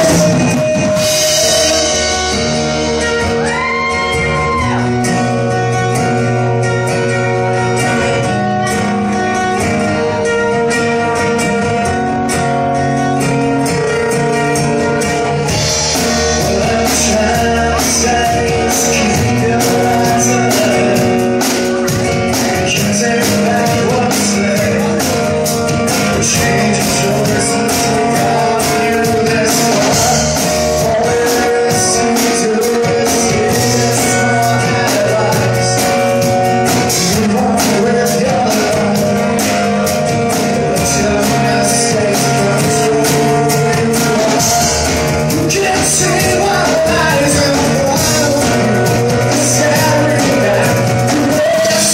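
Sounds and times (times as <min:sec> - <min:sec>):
drum kit on cymbals: 0:00.0 - 0:03.8
lead instrument part: 0:00.0 - 0:51.9
strummed acoustic guitar: 0:00.0 - 0:51.9.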